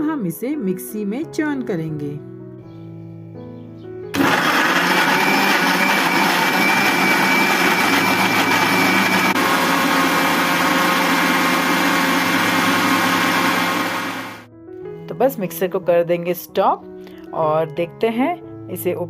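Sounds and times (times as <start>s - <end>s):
mixer grinder blending: 4.2s - 14.5s.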